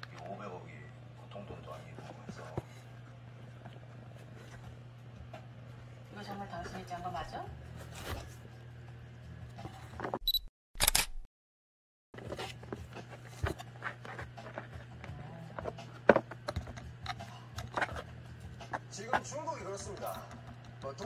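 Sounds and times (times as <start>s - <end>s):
camera shutter click: 10.8s - 11.3s
kitten scratching in boxes: 12.2s - 20.4s.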